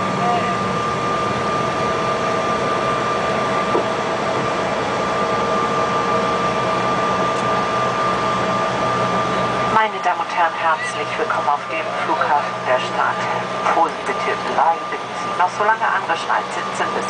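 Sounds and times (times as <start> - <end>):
airplane cabin engine rush: 0.0 - 17.0
steady high whine: 0.0 - 17.0.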